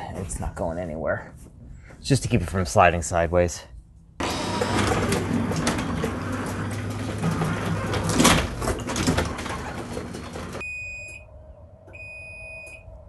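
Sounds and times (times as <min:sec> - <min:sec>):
garage door opener rumble: 0:04.2 - 0:10.6.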